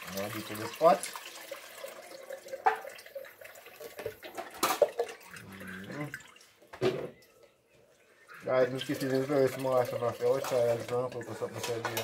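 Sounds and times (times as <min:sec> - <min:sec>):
liquid dripping through strainer: 0:08.4 - 0:11.8.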